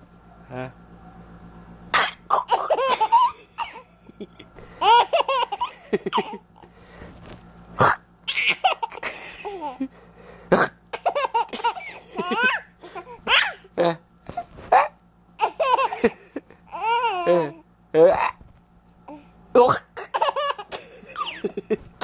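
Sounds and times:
baby laughing: 2.2s - 3.9s, 4.8s - 6.7s, 7.8s - 9.9s, 10.9s - 17.6s, 19.8s - 21.8s.

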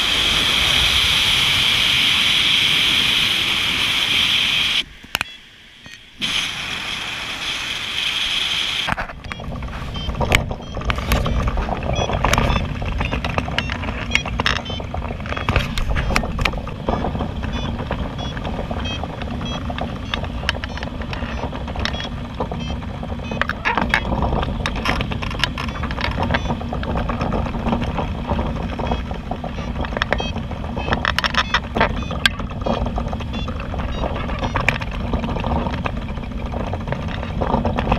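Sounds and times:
wind on microphone: 6.2s - 37.9s
rapid clicks and rattles: 8.8s - 37.9s.

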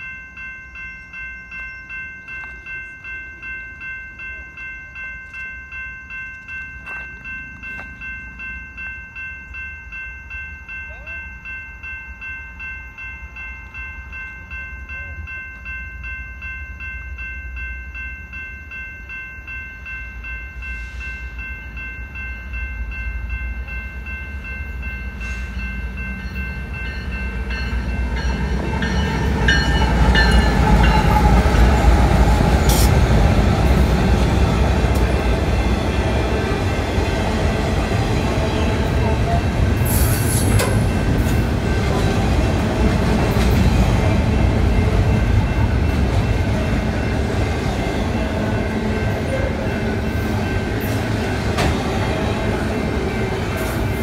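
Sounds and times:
railroad crossing bell ringing: 0.0s - 54.0s
diesel freight train rumble: 20.2s - 54.0s.

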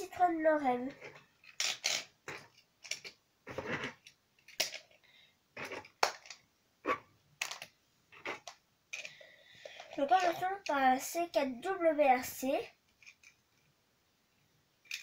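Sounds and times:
toy cars clicking on wooden floor: 1.0s - 5.0s, 7.4s - 9.2s.

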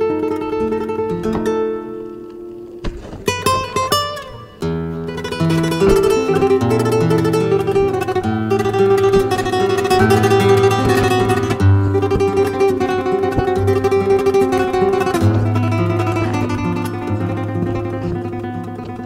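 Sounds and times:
plucked guitar: 0.0s - 19.0s.

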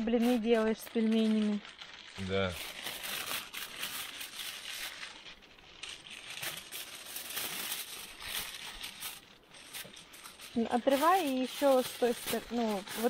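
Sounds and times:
aluminium foil crinkling: 0.0s - 13.0s.

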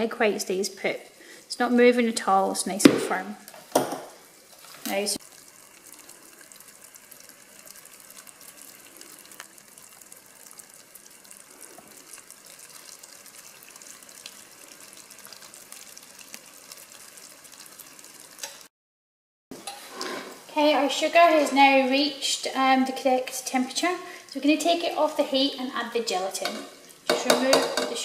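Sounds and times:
syrup boiling in a saucepan: 0.0s - 2.6s, 3.4s - 18.7s, 19.6s - 28.0s.

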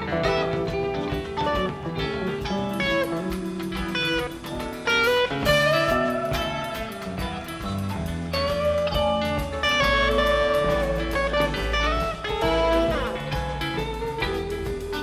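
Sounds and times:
guitar background music: 0.0s - 15.0s.

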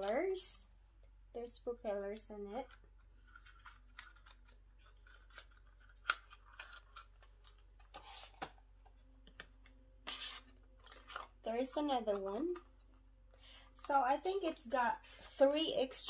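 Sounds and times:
packaging rustling: 2.9s - 12.8s.

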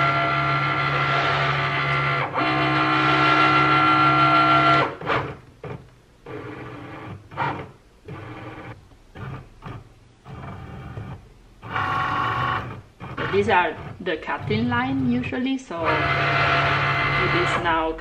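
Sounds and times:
cutting machine motors whining: 0.0s - 18.0s.

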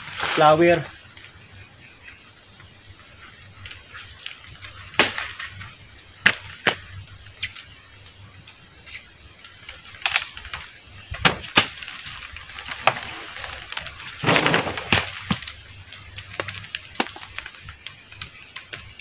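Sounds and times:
banana flowers snapping: 3.7s - 7.7s, 9.7s - 19.0s.

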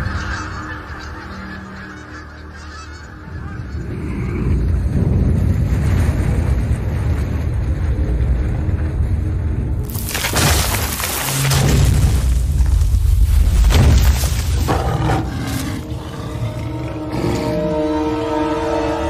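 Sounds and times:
birds honking like geese: 0.0s - 3.9s
deep rumble: 3.3s - 16.8s.

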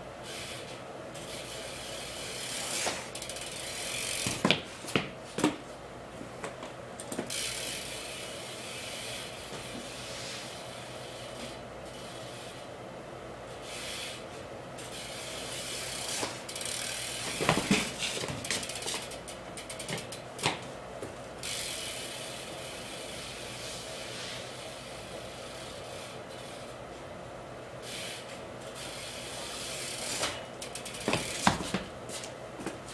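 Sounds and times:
bike freewheel clicking: 0.2s - 5.1s, 7.0s - 12.7s, 13.6s - 14.2s, 14.8s - 20.6s, 21.4s - 26.8s, 27.8s - 31.9s
bike tyres and frame knocking: 2.4s - 8.0s, 15.8s - 21.8s, 29.7s - 32.9s
steady hiss: 7.3s - 12.7s, 21.3s - 31.4s.

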